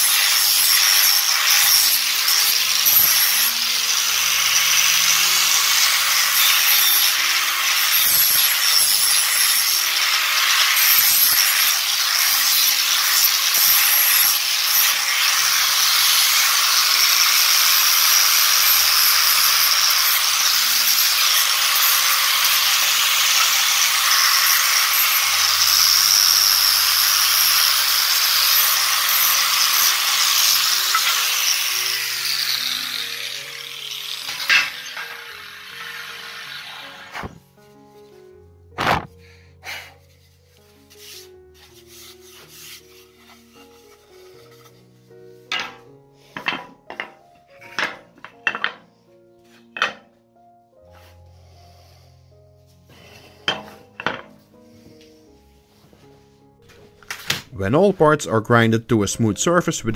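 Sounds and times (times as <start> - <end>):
angle grinder sanding wood: 0.0 - 37.4, 40.5 - 44.9.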